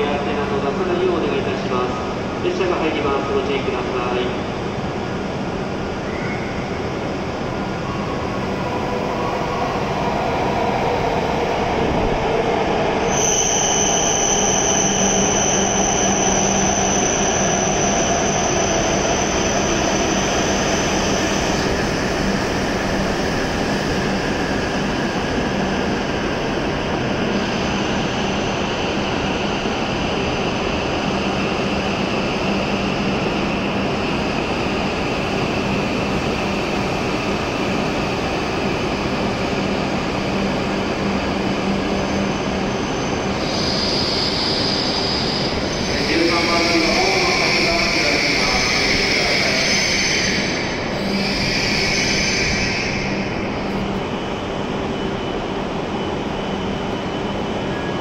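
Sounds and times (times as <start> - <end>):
high-pitched squeal: 12.3 - 22.0, 42.1 - 53.7.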